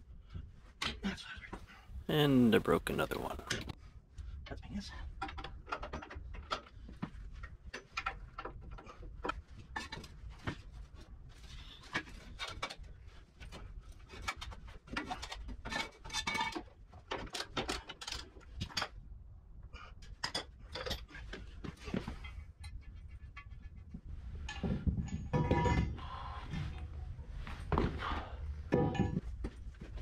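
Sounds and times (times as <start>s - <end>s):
wrenches and metal parts clinking: 14.1s - 18.9s, 20.0s - 21.6s, 24.4s - 26.0s, 28.7s - 29.4s.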